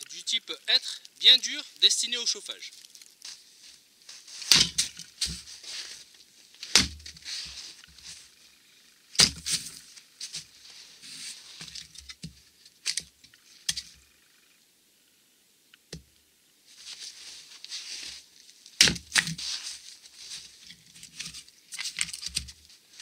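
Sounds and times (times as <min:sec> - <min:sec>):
hatchet chopping log: 0:04.5 - 0:05.0, 0:06.7 - 0:07.1, 0:09.2 - 0:09.5, 0:18.8 - 0:19.3.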